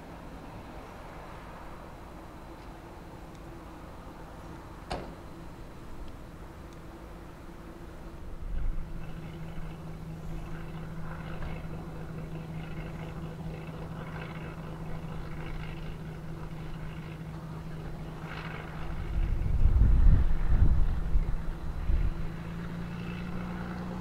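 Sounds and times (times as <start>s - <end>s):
propeller aircraft engine hum: 0.0s - 24.0s
low rumble: 8.0s - 24.0s.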